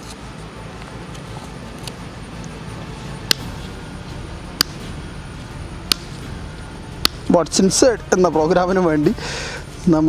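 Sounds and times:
low background rumble: 0.4s - 10.0s.

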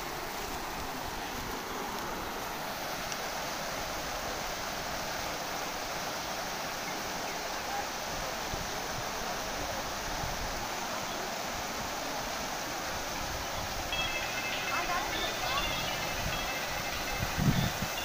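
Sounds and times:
floodwater rushing over embankment: 0.0s - 18.0s.

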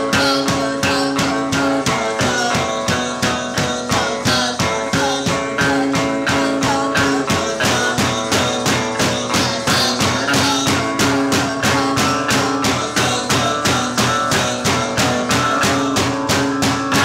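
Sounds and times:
guitar strumming: 0.0s - 17.0s
woman singing: 0.0s - 17.0s.

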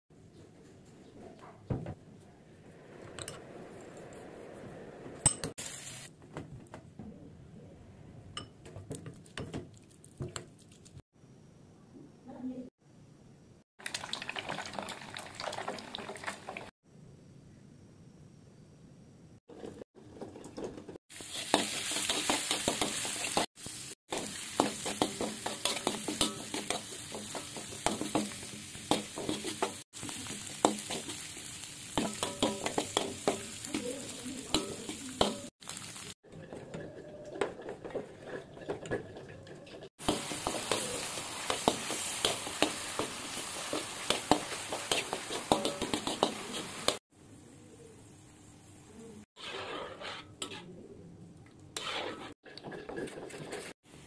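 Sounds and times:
food sizzling in wok: 4.2s - 6.1s, 21.1s - 36.2s, 40.0s - 47.0s.

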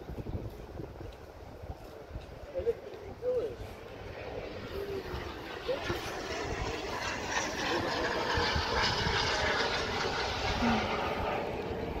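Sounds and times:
model aircraft engine rushing: 2.8s - 12.0s.

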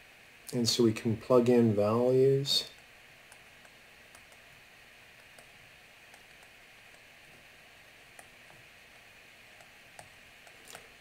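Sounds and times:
faint steady hiss: 0.0s - 11.0s
stylus tapping tablet screen: 2.8s - 4.5s, 5.2s - 7.1s.

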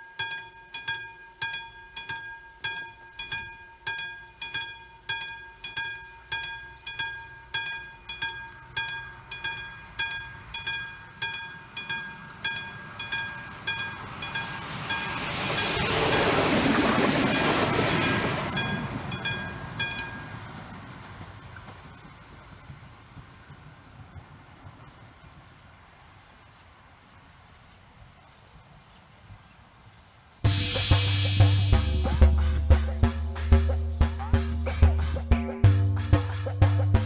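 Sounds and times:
level-crossing warning bell ringing: 0.0s - 20.9s
diesel railcar passing: 0.0s - 27.6s, 30.4s - 37.0s.

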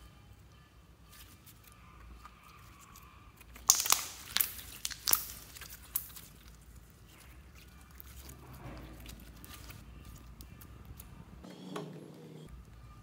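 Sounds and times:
slime squeezed by hand: 3.4s - 10.4s
slime crackling and clicking: 3.4s - 11.1s.

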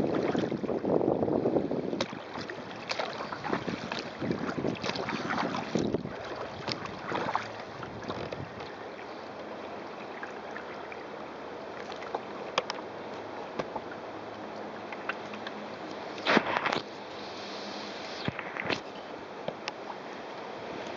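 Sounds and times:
wind on microphone: 0.0s - 8.8s, 16.2s - 18.9s
water splashing along hull: 0.0s - 20.9s.

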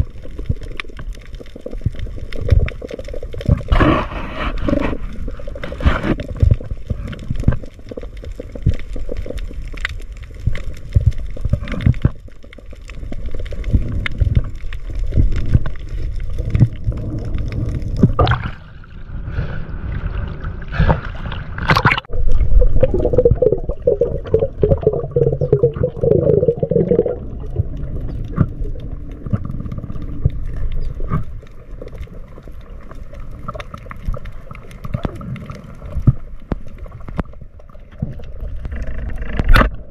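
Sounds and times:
seawater sloshing and gurgling: 13.6s - 31.4s.

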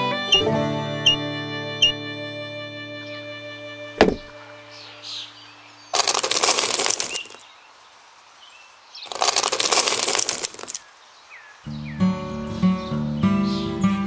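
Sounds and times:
gravel stones poured and rattling: 5.9s - 7.5s, 9.0s - 10.9s.

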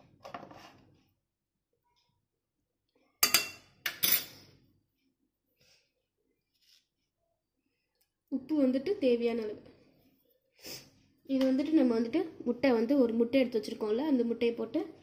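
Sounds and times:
spoon clinking on containers: 3.2s - 4.4s.

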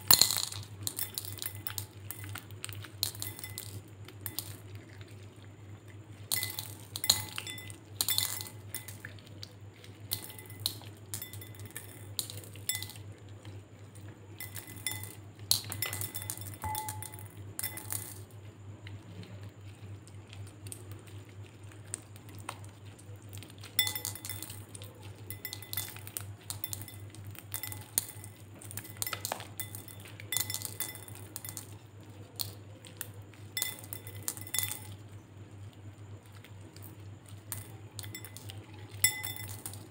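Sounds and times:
beads clinking against glass: 0.0s - 4.7s, 6.2s - 13.2s, 14.4s - 18.3s, 23.6s - 35.0s, 36.8s - 39.9s
steady low hum: 0.0s - 39.9s.

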